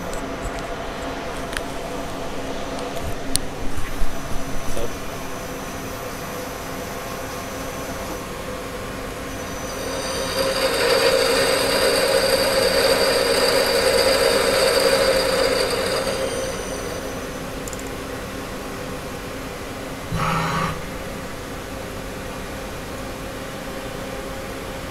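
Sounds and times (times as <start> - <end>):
rising whine: 7.4 - 18.6, 20.1 - 21.4
machine tool humming: 7.8 - 18.6, 20.1 - 21.4.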